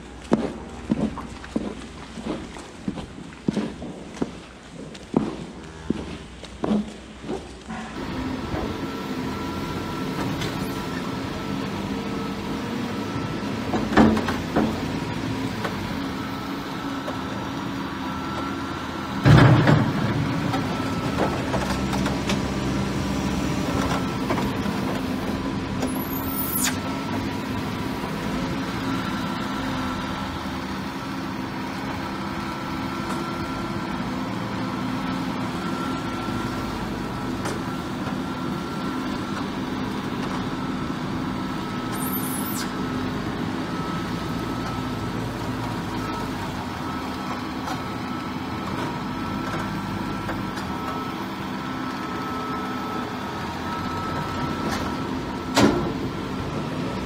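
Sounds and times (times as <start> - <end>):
diesel engine running: 0.0 - 2.9, 5.4 - 57.0
high squeals: 25.9 - 26.9, 41.9 - 42.8.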